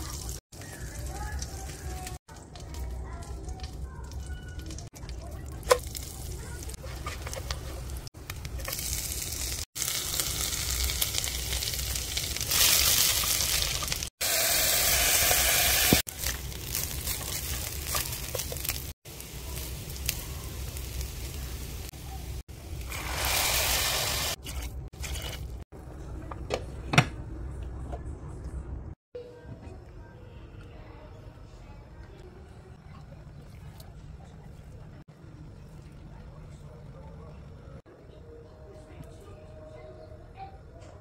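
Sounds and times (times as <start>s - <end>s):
oil sizzling in a pot: 5.7s - 25.6s.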